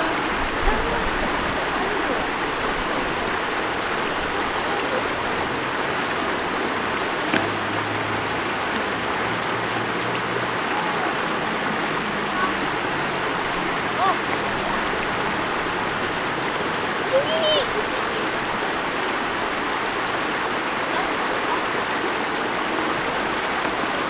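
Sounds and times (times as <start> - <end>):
stream rushing over rocks: 0.0 - 24.0.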